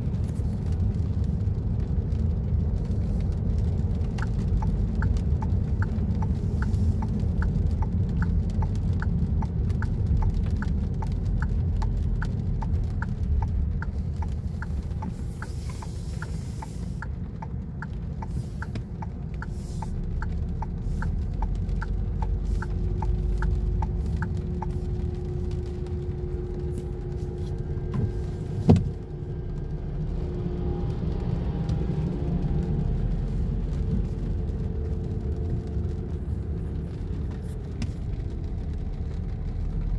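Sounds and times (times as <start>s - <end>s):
car engine and tyres rumbling: 0.0s - 39.9s
turn signal ticking: 3.3s - 27.1s.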